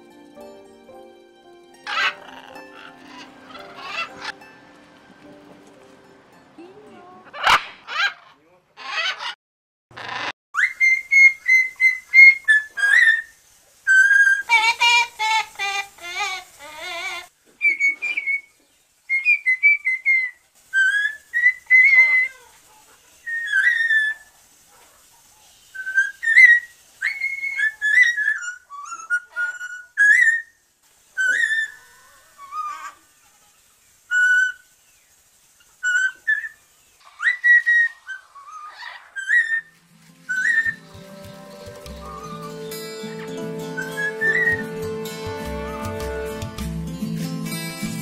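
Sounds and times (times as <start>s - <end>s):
parrot harsh calls: 1.9s - 4.8s, 7.3s - 13.3s, 13.9s - 18.4s, 19.1s - 24.3s, 25.7s - 30.6s, 31.2s - 34.7s, 35.6s - 45.0s
parrot whistling: 1.9s - 4.8s, 10.6s - 13.3s, 25.8s - 30.5s, 31.2s - 32.7s, 35.8s - 45.0s.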